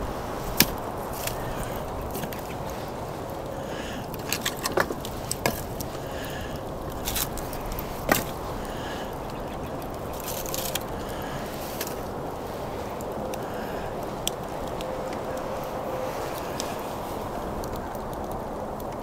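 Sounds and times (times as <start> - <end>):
campfire crackling: 0.0 - 19.0
fire hiss: 0.0 - 19.0
firewood pops and knocks: 0.5 - 2.7, 4.1 - 6.1, 6.9 - 11.0.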